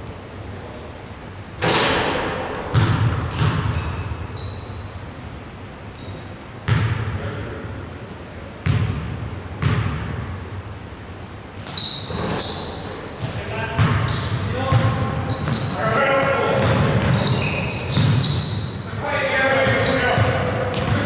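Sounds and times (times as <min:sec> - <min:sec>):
basketball bouncing on wooden floor: 0:01.6 - 0:04.4, 0:06.7 - 0:07.1, 0:08.6 - 0:10.3, 0:13.2 - 0:18.5, 0:19.6 - 0:21.0
sneaker squeaks: 0:02.7 - 0:10.1, 0:11.6 - 0:21.0.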